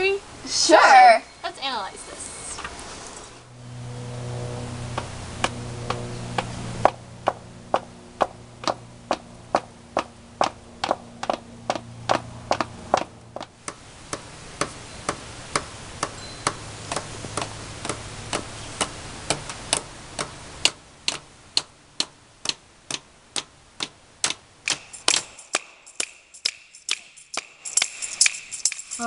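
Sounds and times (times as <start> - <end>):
faint low hum: 0.0 - 25.6
sharp ticking: 4.8 - 29.0.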